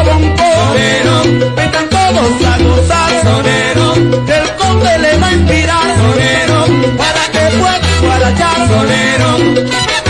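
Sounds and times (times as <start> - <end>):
bass line: 0.0 - 10.0
conga drums: 0.0 - 10.0
maracas: 0.0 - 10.0
trumpets: 6.1 - 10.0.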